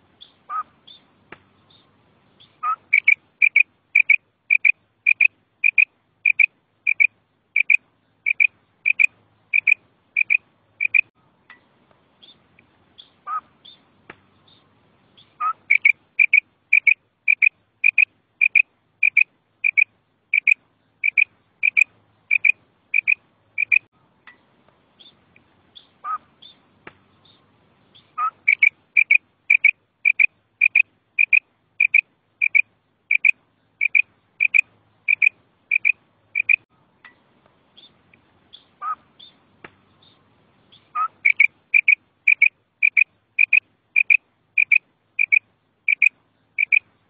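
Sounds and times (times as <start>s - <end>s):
quail calling: 0.2s - 1.0s, 2.4s - 11.1s, 13.0s - 13.8s, 15.2s - 23.9s, 25.8s - 26.6s, 28.0s - 36.6s, 38.5s - 39.4s, 40.7s - 46.8s.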